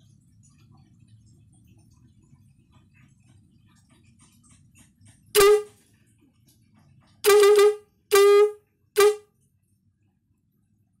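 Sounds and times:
truck air horn blasts: 5.4 - 5.8, 7.2 - 9.3.

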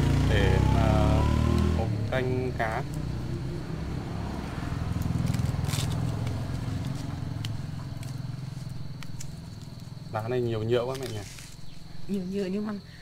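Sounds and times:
leaves being plucked: 10.8 - 11.6.

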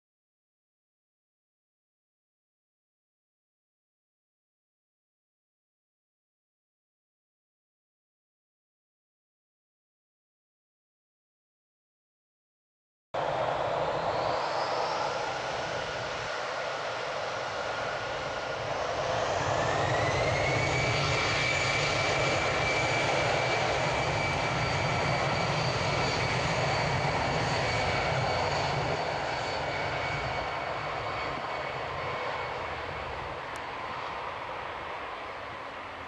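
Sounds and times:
jet engines whining: 13.2 - 36.0
jet rumble: 13.2 - 36.0.

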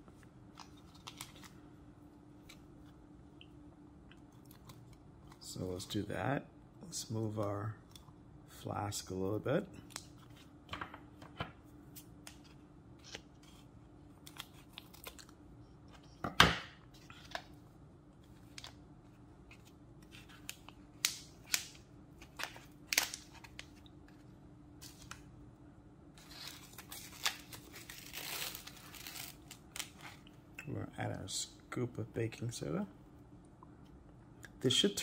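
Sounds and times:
faint steady hum: 0.0 - 35.0
rustling and tearing: 26.2 - 30.3.

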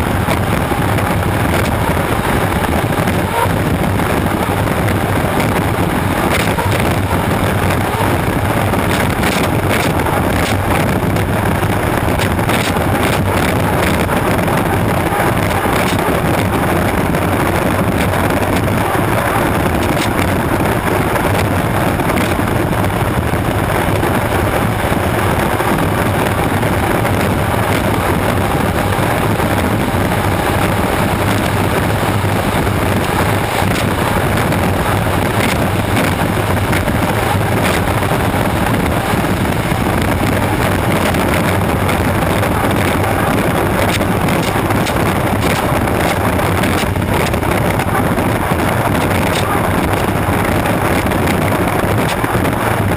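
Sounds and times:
turbine engine running: 0.0 - 52.9
wind buffeting microphone: 0.0 - 52.9.

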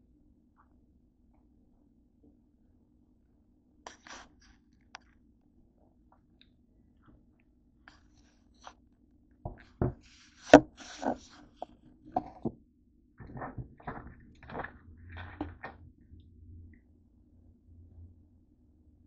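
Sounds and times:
knocks and thuds on a desk: 9.5 - 11.2
scuffing and clatter: 13.2 - 15.8.

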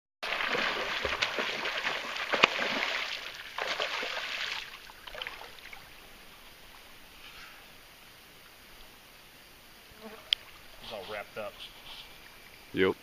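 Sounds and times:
fish splashing at water surface: 0.2 - 5.9.

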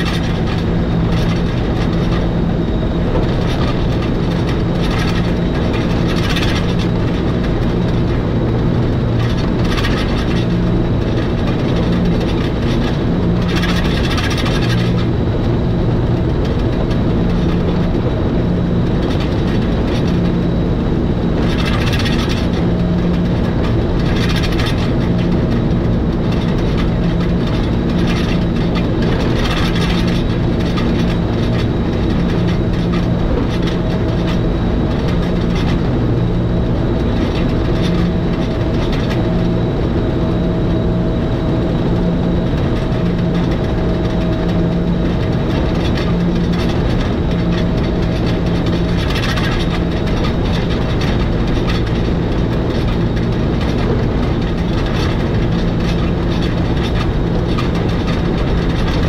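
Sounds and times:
rack railway train rumbling: 0.0 - 20.5
low pulsing drone: 0.0 - 59.0.

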